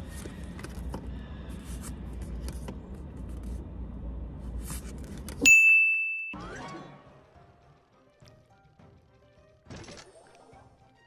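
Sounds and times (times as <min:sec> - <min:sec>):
cards clicking and rustling: 0:00.0 - 0:01.1
low hum inside car: 0:00.0 - 0:05.6
high ding sound effect: 0:05.5 - 0:06.5.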